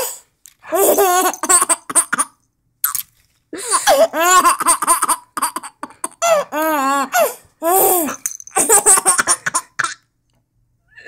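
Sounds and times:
baby laughing: 0.7s - 2.4s, 3.7s - 10.0s.

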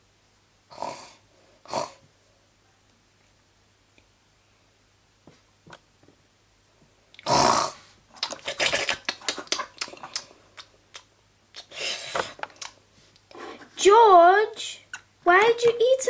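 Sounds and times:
person making munching noises: 7.1s - 12.8s.

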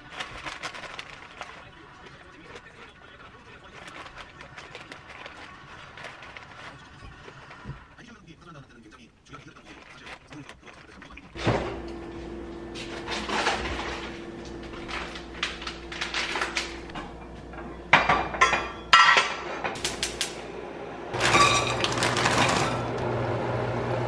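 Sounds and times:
frozen pasta rattling into saucepan: 0.0s - 7.6s, 9.3s - 11.4s, 13.0s - 16.9s, 21.2s - 23.0s
rustling: 0.0s - 8.0s, 9.2s - 11.4s
cookware clinking: 16.4s - 20.1s.

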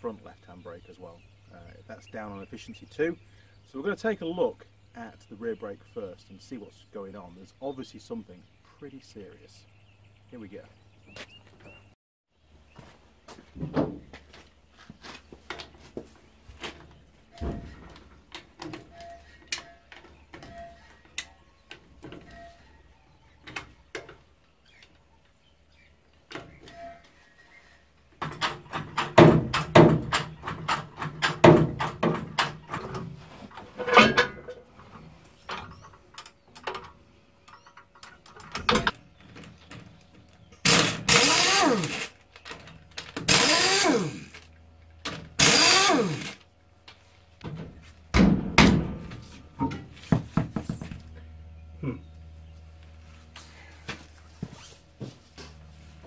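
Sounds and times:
trolley jack creaking: 28.3s - 44.5s, 45.1s - 46.4s
heavy thud: 48.1s - 49.2s.

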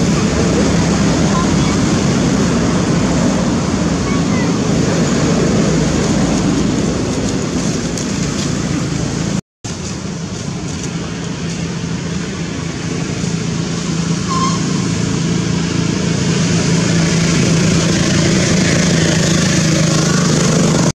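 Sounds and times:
short high chirp: 14.2s - 15.2s.

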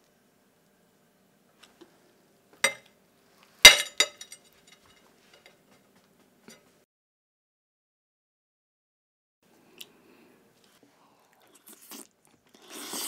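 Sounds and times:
kitchenware clinking and knocking: 2.6s - 2.9s, 3.7s - 5.5s.

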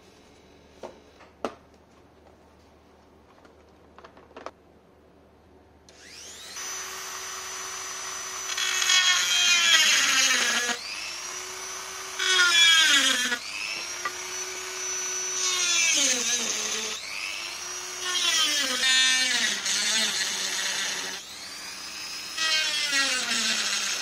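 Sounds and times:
electric drill whining: 5.9s - 24.0s.

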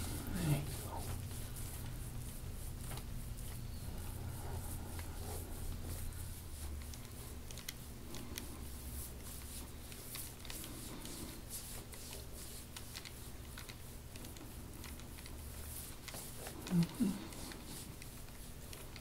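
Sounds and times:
crackling and rubbing on skin: 0.0s - 19.0s
low steady hum: 0.0s - 19.0s.

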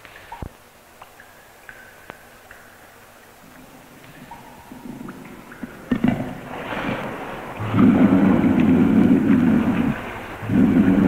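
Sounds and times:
water sloshing and splashing: 3.4s - 11.0s
big cat growling: 4.6s - 11.0s.

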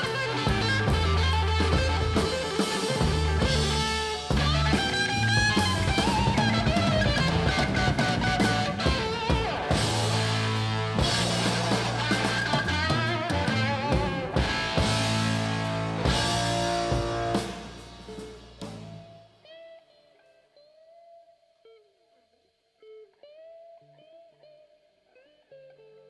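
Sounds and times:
sparse guitar bent notes: 0.0s - 17.4s
rock band playing: 0.0s - 20.3s.

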